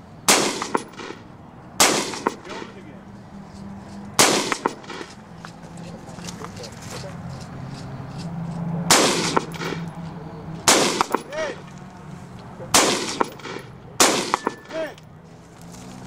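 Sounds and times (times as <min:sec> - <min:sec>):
rifle shots: 0:00.3 - 0:02.8, 0:04.2 - 0:05.2, 0:08.9 - 0:09.9, 0:10.6 - 0:11.4, 0:12.7 - 0:14.9
bullet clanging on steel plate: 0:09.0 - 0:11.4, 0:12.8 - 0:15.0.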